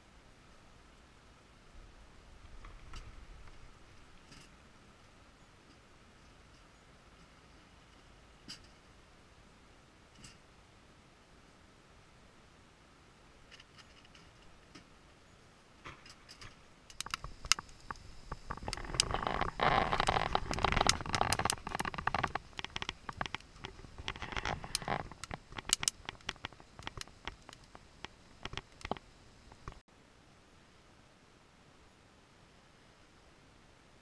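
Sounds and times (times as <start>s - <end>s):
firewood crackling and popping: 15.8s - 29.9s.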